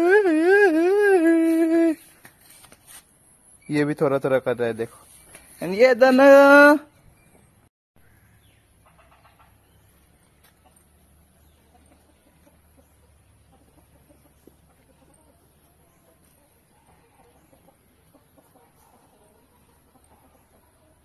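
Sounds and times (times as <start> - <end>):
chickens clucking: 8.8 - 21.0.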